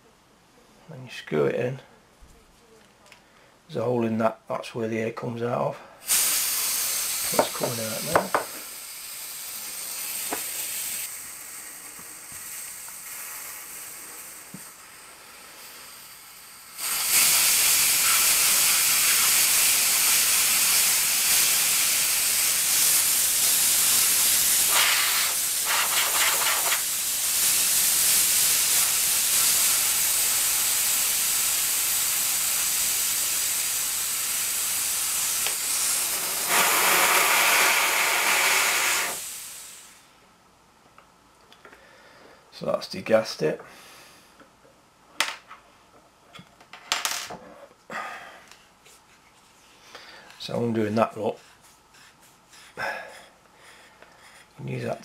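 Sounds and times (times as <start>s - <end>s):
high-pressure air hissing: 6.0s - 40.2s.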